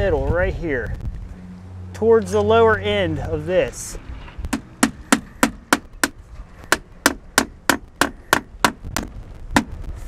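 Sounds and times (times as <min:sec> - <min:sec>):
hammer striking nail into metal: 0:04.5 - 0:09.7.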